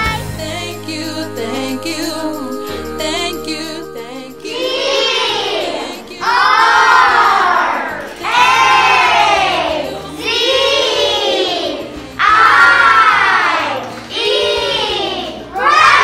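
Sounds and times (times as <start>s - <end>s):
children shouting in unison: 4.5s - 16.0s.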